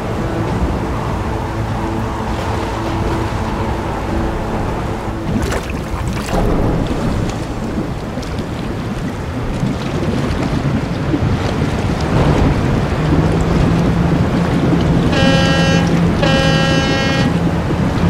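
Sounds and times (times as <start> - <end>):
low motor hum: 0.0 - 18.0
wind and waves: 0.0 - 18.0
short horn blasts: 15.0 - 17.5.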